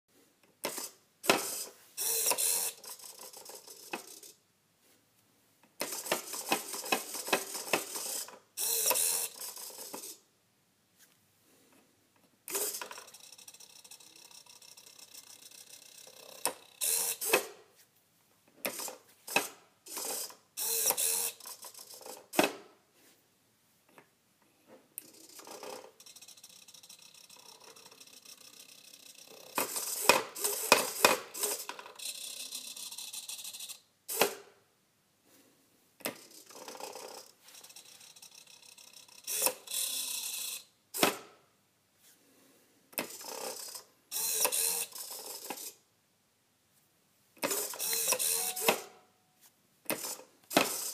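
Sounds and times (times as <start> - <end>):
small electric motor whirring: 1.4 - 4.3, 5.9 - 10.2, 12.5 - 17.4, 19.9 - 22.2, 25.0 - 33.8, 36.3 - 40.7, 43.2 - 45.7, 47.5 - 48.8.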